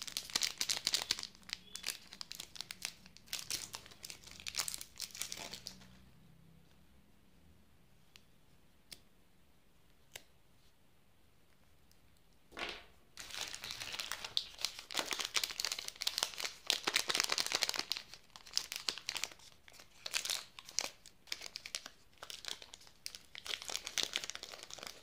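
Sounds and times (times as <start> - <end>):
plastic wrapper crinkling and tearing: 0.0 - 6.0, 13.2 - 25.0.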